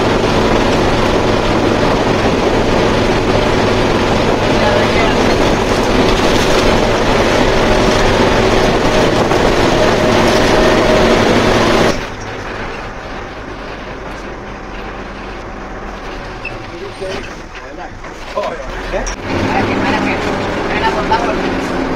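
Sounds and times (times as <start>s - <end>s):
coach engine drone: 0.0s - 21.9s
road and wind noise: 0.0s - 21.9s.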